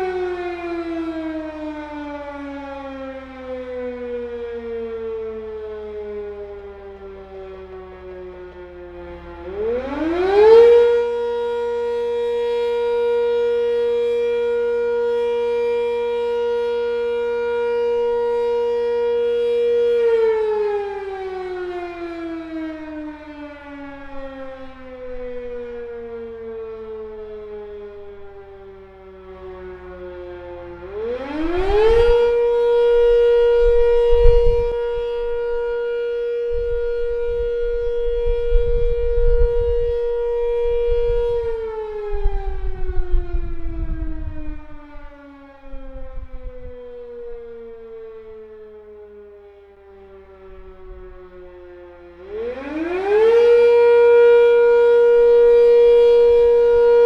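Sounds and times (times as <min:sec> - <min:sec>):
fire siren wailing: 0:00.0 - 0:57.0.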